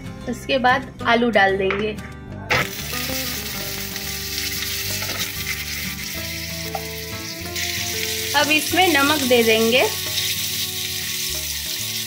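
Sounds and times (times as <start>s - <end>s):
potatoes frying in oil: 2.5s - 12.0s.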